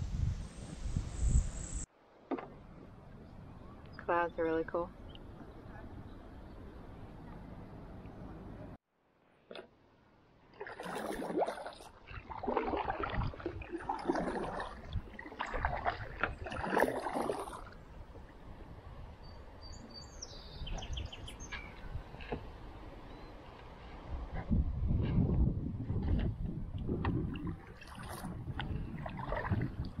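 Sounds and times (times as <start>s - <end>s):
paddle splashing water: 10.4s - 18.8s, 26.8s - 30.0s
faint high bird chirps: 19.2s - 22.0s.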